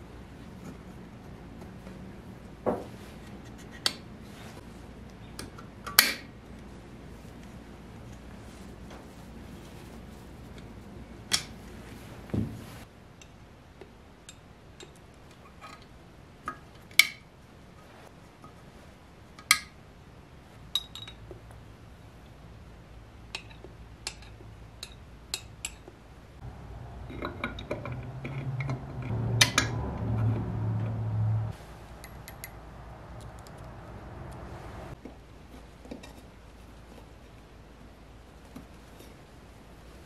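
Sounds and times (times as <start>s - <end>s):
low steady hum: 0.0s - 40.0s
metal parts clicking and clinking: 27.0s - 29.8s.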